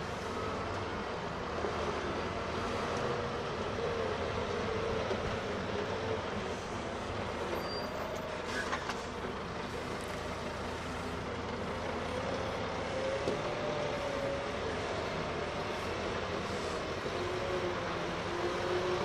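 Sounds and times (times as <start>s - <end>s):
wavering squeal: 7.6s - 8.7s
diesel engine running: 8.8s - 19.0s.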